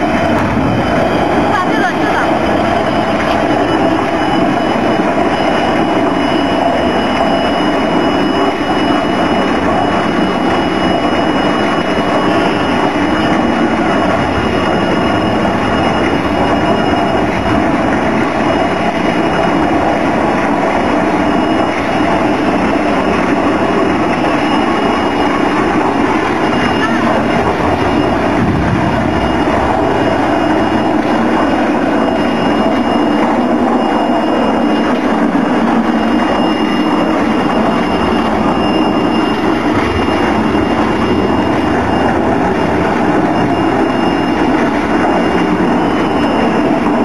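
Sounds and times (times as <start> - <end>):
concrete mixer running: 0.0 - 47.0
thin high whine: 0.0 - 47.0.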